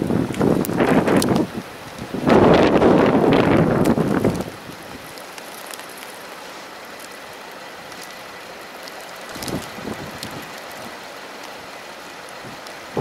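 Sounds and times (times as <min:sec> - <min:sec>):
wind buffeting microphone: 0:00.0 - 0:05.2, 0:09.3 - 0:11.1, 0:12.3 - 0:13.0
rain falling in wind: 0:00.0 - 0:13.0.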